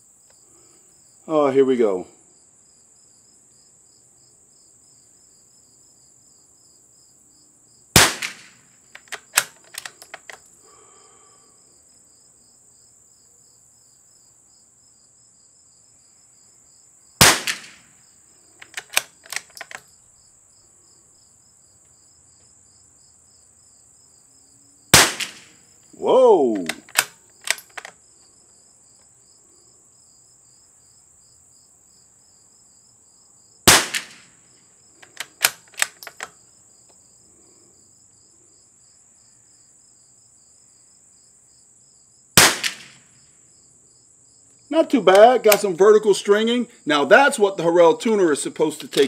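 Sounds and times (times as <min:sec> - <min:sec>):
crickets chirping: 0:00.0 - 0:49.0
rifle shots: 0:08.0 - 0:09.9, 0:17.2 - 0:17.9, 0:24.9 - 0:25.6, 0:33.7 - 0:34.3, 0:42.4 - 0:43.0
rifle bolt clicks: 0:08.2 - 0:10.5, 0:17.2 - 0:17.8, 0:18.6 - 0:19.9, 0:26.6 - 0:28.0, 0:33.7 - 0:34.2, 0:35.0 - 0:36.3, 0:42.4 - 0:43.0.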